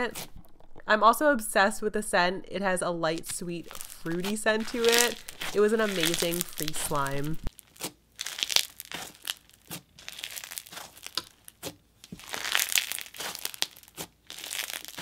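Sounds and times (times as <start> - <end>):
bead slime crunching and popping: 3.1 - 15.0.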